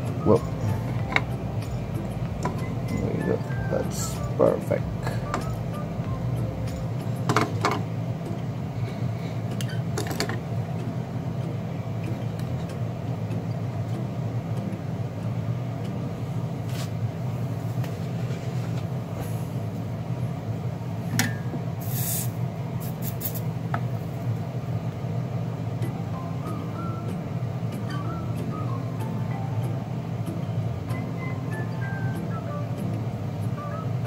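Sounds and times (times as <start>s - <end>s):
steady low hum: 0.0s - 34.0s
tools clicking and tapping: 7.3s - 7.8s.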